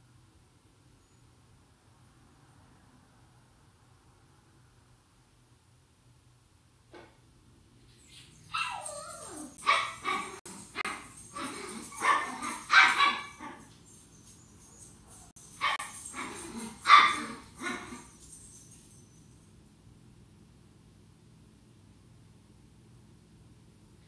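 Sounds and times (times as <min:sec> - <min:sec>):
dog barking: 0:08.6 - 0:11.1, 0:11.8 - 0:13.6, 0:15.6 - 0:18.0.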